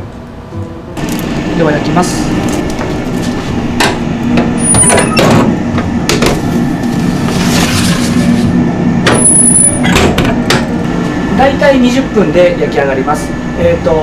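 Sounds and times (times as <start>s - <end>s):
machinery hum: 0.0s - 14.0s
metal tray clattering and scraping: 7.3s - 8.5s.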